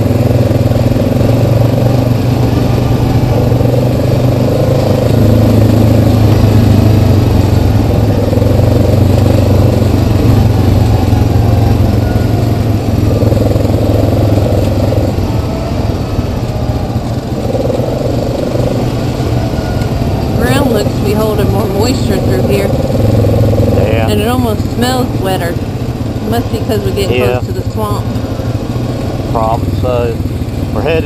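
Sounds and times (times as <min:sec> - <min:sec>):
quad engine running: 0:00.0 - 0:31.0.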